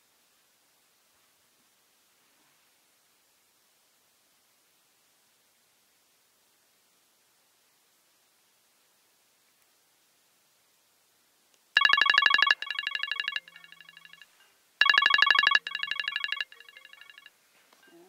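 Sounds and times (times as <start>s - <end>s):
phone ringing with electronic trill: 11.8s - 17.3s.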